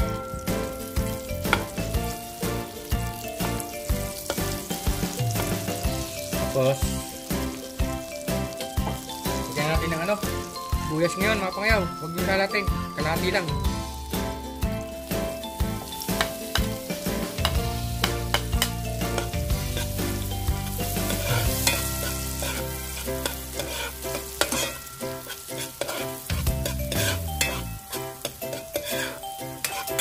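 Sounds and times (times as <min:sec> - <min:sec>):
onions sizzling in oil: 0:00.0 - 0:30.0
metal spoon scraping pot: 0:21.0 - 0:30.0.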